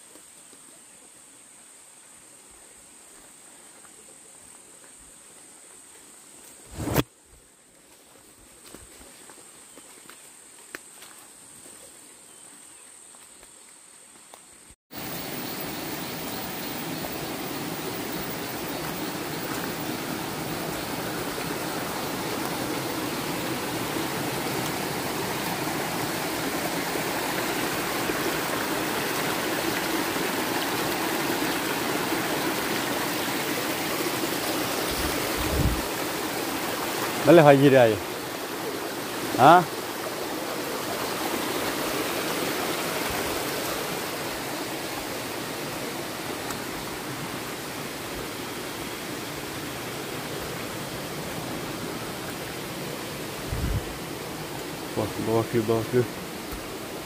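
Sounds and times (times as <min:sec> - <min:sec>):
rushing water: 0:14.9 - 0:57.0
high-pitched insect buzz: 0:15.0 - 0:27.8.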